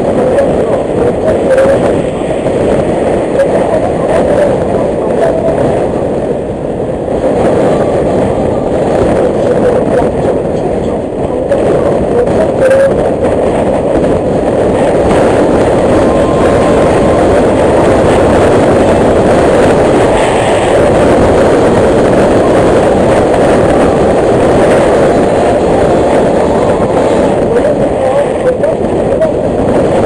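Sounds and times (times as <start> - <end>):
wind rush on microphone: 0.0 - 30.0.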